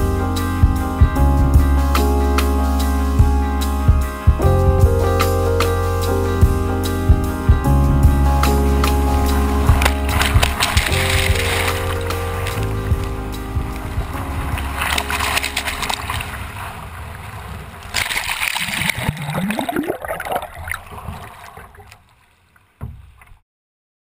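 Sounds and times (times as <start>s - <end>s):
whitewater rushing and splashing: 8.9s - 21.9s
water lapping: 9.2s - 23.2s.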